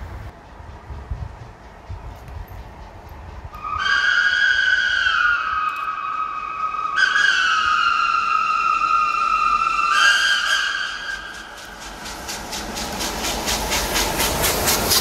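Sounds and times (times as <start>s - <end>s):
steam locomotive whistle: 3.5s - 11.6s.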